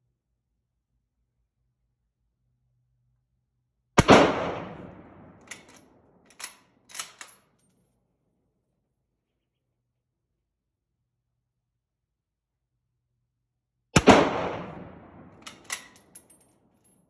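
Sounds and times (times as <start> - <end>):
rifle shot echoing: 4.0 - 5.7, 14.0 - 16.0
rifle bolt clacking: 5.4 - 7.4, 15.4 - 16.4.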